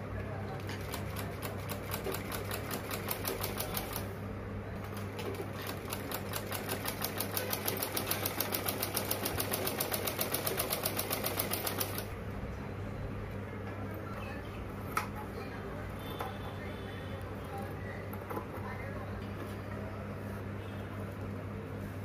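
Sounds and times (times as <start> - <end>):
sewing machine stitching: 4.9 - 12.1.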